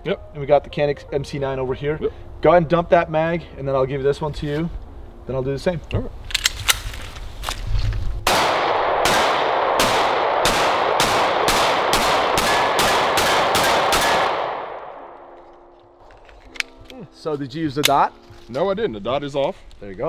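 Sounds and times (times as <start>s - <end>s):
small gun clicks: 6.3s - 7.6s, 16.1s - 17.0s
pistol shots echoing: 8.3s - 15.4s.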